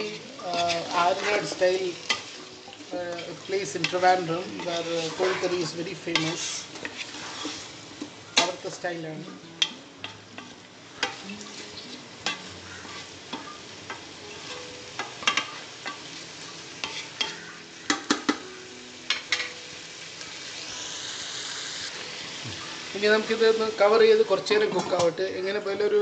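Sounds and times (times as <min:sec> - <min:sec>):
spatula scraping frying pan: 0:00.0 - 0:08.7, 0:09.6 - 0:16.2, 0:16.8 - 0:17.6
food sizzling in frying pan: 0:00.0 - 0:26.0.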